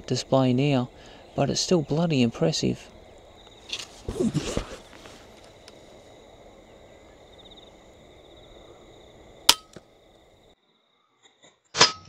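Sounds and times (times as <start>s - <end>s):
crickets trilling: 0.0s - 11.3s.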